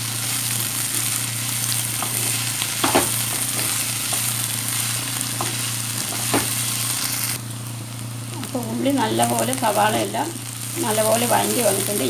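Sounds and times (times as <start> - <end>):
onions sizzling in oil: 0.0 - 12.0
steady low hum: 0.0 - 12.0
wooden spatula knocking pan: 2.0 - 4.2, 5.4 - 6.6.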